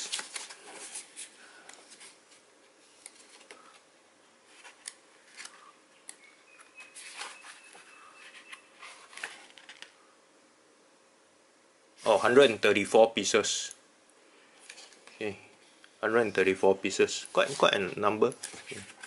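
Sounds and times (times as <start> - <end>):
paper pages turning: 0.0 - 3.8, 4.5 - 5.7, 6.6 - 10.0, 17.3 - 19.0.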